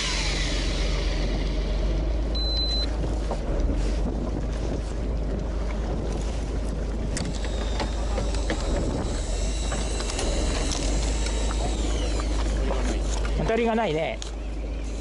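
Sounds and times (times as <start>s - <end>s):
fishing reel whining: 0.0s - 1.8s, 7.2s - 12.6s
boat engine low rumble: 0.0s - 15.0s.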